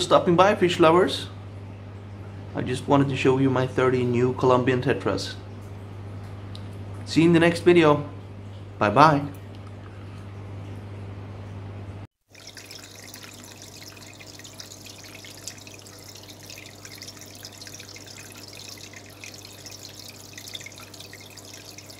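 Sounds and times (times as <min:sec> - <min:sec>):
water trickling and dripping: 0:12.2 - 0:21.9.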